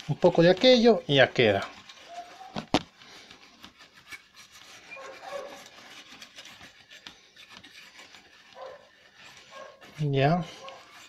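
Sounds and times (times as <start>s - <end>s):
brush scrubbing circuit board: 3.2s - 11.0s.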